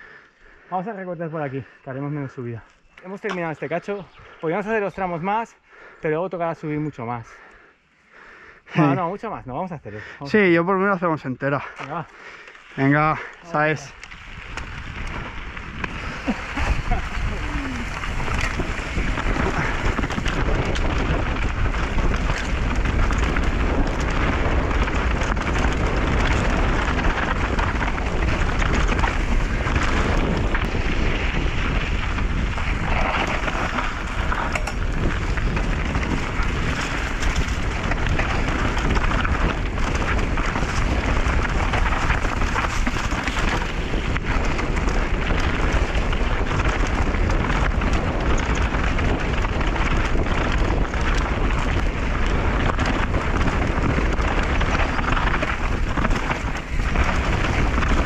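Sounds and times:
tyres crunching on dirt and stones: 12.8s - 58.0s
wind on microphone: 13.0s - 58.0s
bike rattling and knocking: 14.1s - 58.0s.

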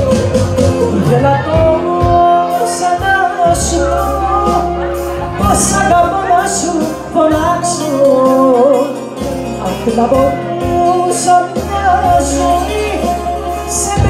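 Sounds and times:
drums: 0.0s - 14.0s
guitar: 0.0s - 14.0s
keyboard: 0.0s - 14.0s
woman singing into microphone: 0.0s - 14.0s.

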